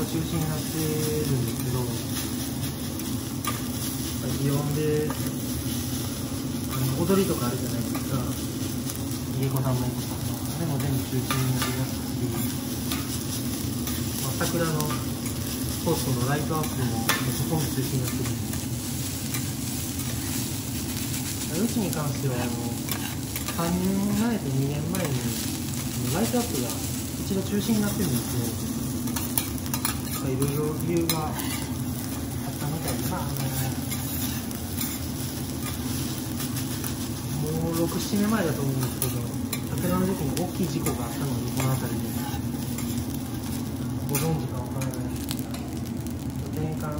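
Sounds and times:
rice sizzling on a griddle: 0.0s - 46.9s
metal spatulas scraping: 22.4s - 23.7s, 29.1s - 32.1s, 32.9s - 37.0s
person speaking: 30.1s - 34.0s, 37.3s - 42.5s.

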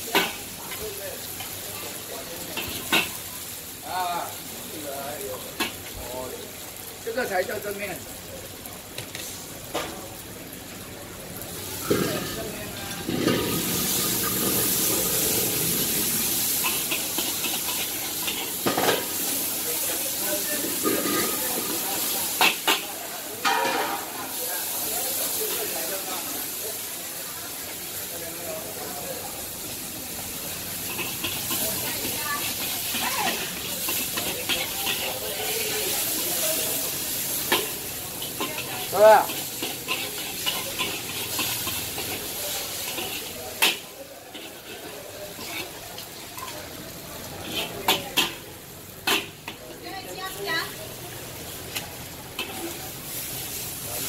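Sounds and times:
noodles sizzling in a wok: 0.0s - 54.0s
metal spatula scraping a wok: 13.1s - 19.2s, 30.8s - 45.8s, 47.3s - 48.4s, 52.3s - 53.6s.

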